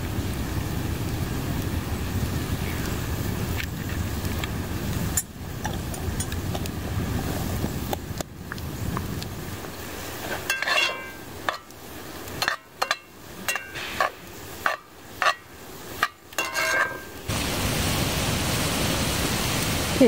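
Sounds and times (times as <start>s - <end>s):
meat sizzling: 0.0s - 20.0s
spoon scraping and clinking pan: 10.3s - 11.7s, 12.4s - 17.2s.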